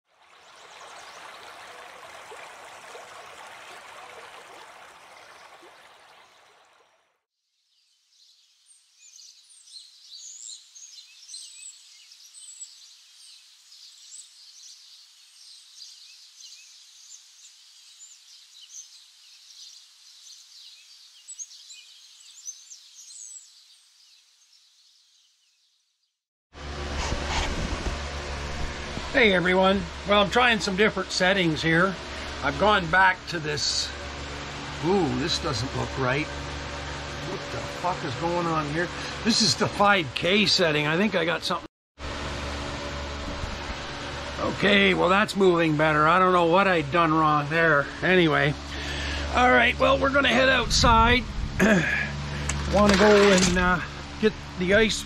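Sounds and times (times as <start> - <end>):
running water rushing: 0.0 - 7.1
birds chirping: 0.3 - 2.2, 7.6 - 26.2, 29.2 - 41.7, 43.8 - 55.0.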